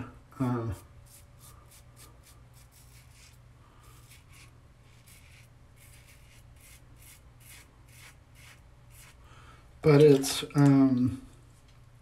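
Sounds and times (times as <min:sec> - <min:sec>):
razor scraping stubble: 0:01.1 - 0:09.2.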